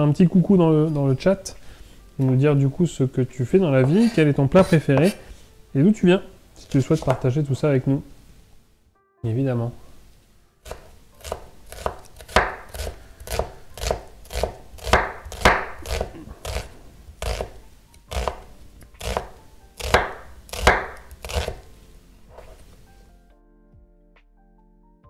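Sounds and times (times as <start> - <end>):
knife chopping on wooden board: 10.7 - 21.7.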